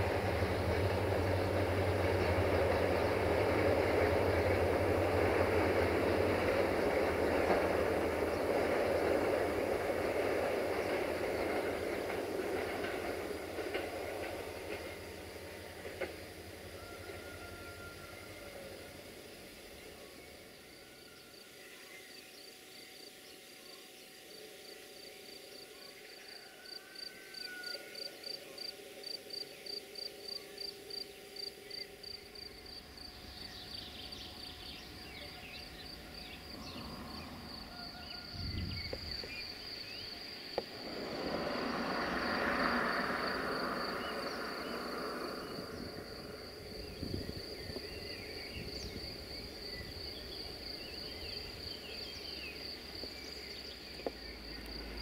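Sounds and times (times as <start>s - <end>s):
insect chirping: 0.0s - 55.0s
broad rushing noise: 40.1s - 46.9s.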